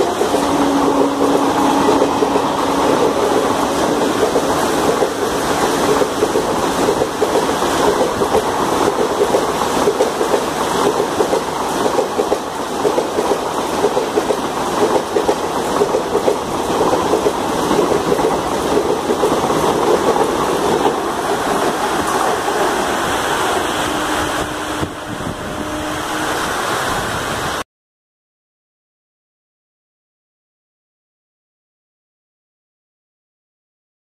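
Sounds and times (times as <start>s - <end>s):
wheels clattering over rail joints: 0.0s - 23.7s
train coaches rushing past: 0.0s - 27.6s.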